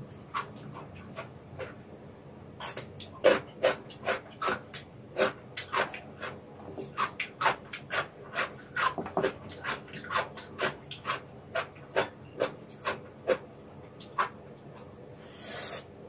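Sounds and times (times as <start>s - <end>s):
mouth chewing noodles: 2.6s - 14.3s.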